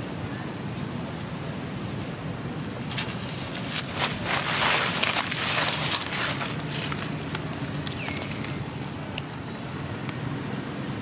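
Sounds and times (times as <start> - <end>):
dry leaves crackling and rustling: 2.8 - 10.3.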